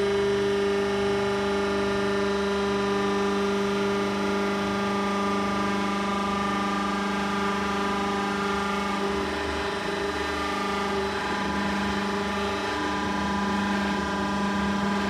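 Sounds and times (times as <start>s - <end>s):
hydraulic baler motor humming: 3.1s - 15.0s.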